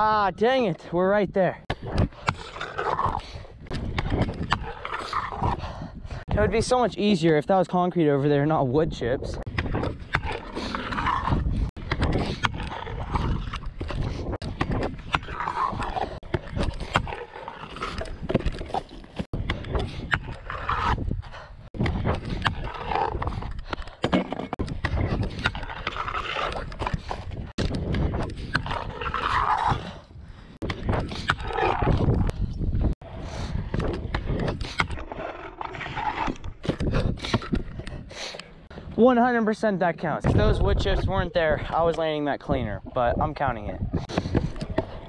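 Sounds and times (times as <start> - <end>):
wind rumble on microphone: 1.7 - 6.9, 8.7 - 17.2, 17.9 - 23.7, 24.5 - 38.2, 40.2 - 41.9, 42.5 - 45.0
scooter wheels rolling on concrete: 9.3 - 32.4, 33.0 - 39.0
scooter grinding on concrete ledge: 9.5 - 30.0.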